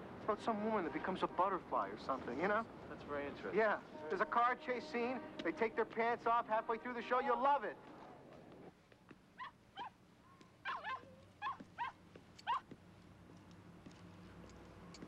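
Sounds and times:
small dog whining yips: 0:09.4 - 0:10.0, 0:10.6 - 0:12.7.

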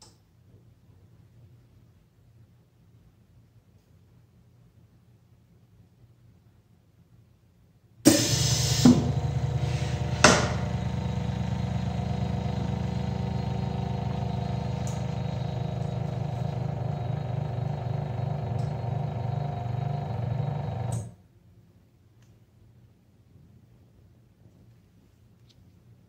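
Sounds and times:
press mechanical hum: 0:08.1 - 0:21.2.

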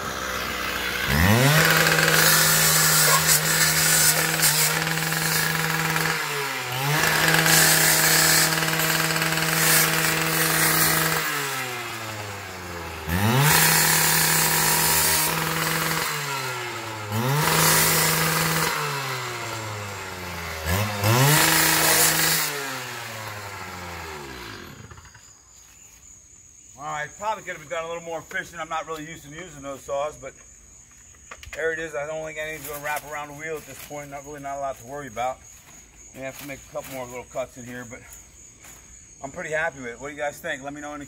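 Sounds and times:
cut-off saw cutting metal: 0:00.0 - 0:25.1.

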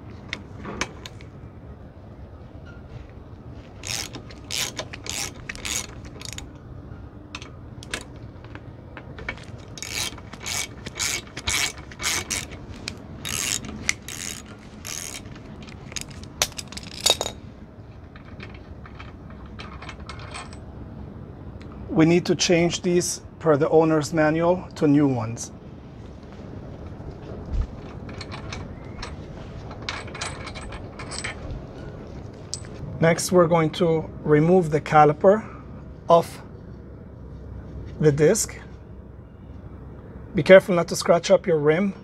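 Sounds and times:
socket ratchet clicking: 0:03.8 - 0:06.5, 0:09.3 - 0:17.4.

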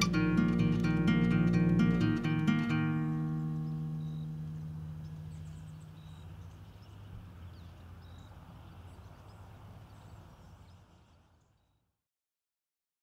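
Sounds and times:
short high call: 0:00.0 - 0:00.3
small bird chirps: 0:02.5 - 0:11.8.

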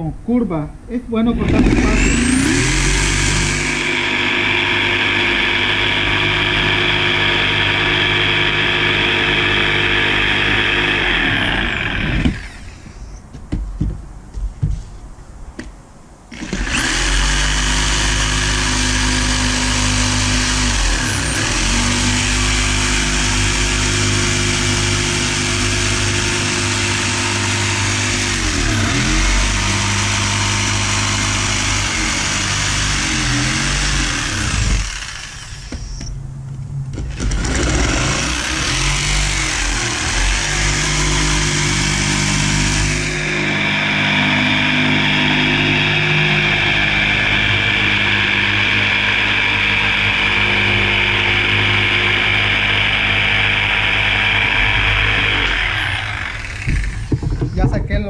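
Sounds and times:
jigsaw cutting wood: 0:01.3 - 0:13.0, 0:16.3 - 0:35.9, 0:37.0 - 0:58.0
board knocking: 0:13.3 - 0:14.8, 0:56.6 - 0:58.0.

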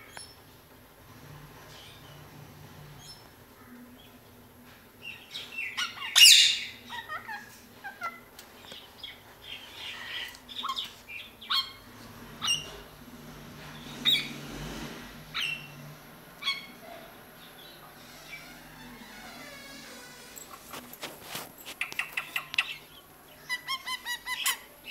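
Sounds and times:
parakeets screeching and chirping: 0:05.1 - 0:08.2, 0:09.6 - 0:12.9, 0:13.7 - 0:14.4, 0:15.3 - 0:17.0.

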